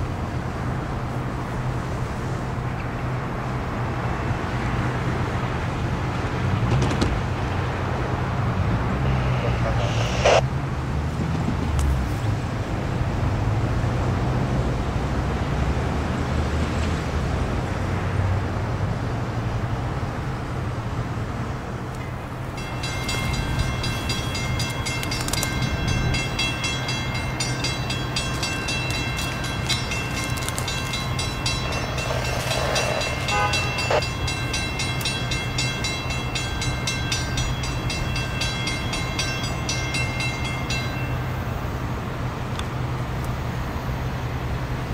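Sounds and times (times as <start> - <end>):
low engine drone: 7.4 - 10.5, 23.2 - 36.3
rail grinding hiss: 8.1 - 10.5, 22.0 - 44.0
high whining tones: 8.6 - 10.4, 22.6 - 40.1.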